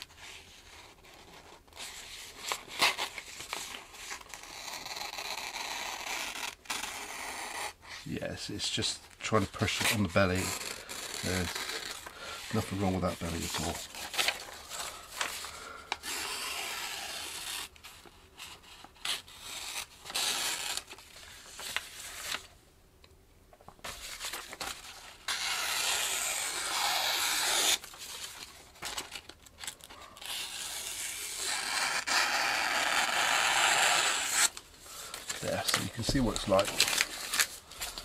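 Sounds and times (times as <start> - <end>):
knife slicing through paper: 24.1 - 29.2.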